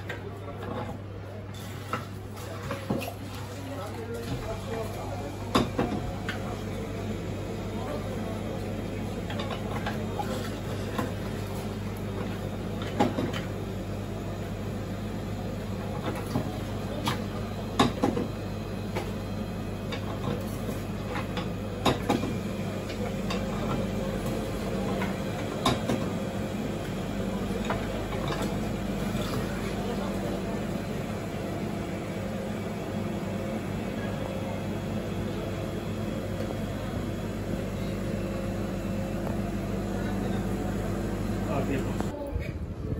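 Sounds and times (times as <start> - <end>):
steady hum: 13.6 - 42.9.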